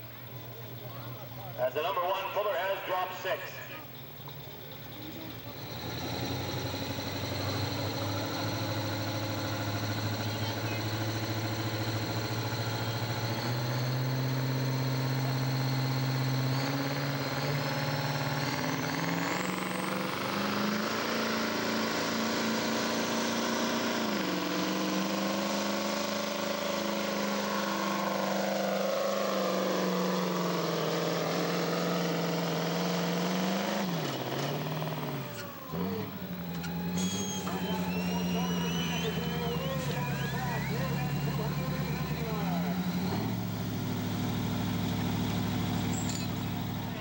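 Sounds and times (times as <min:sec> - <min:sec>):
diesel truck engine revving: 0:00.0 - 0:47.0
high whistle: 0:36.6 - 0:42.9.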